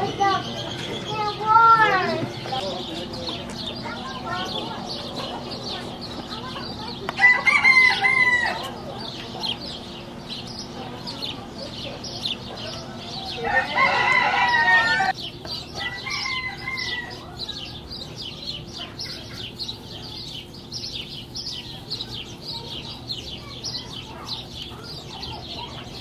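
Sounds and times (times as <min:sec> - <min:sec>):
small birds chirping: 0:00.0 - 0:26.0
rooster crowing: 0:07.2 - 0:08.7, 0:12.9 - 0:15.2, 0:15.8 - 0:17.8.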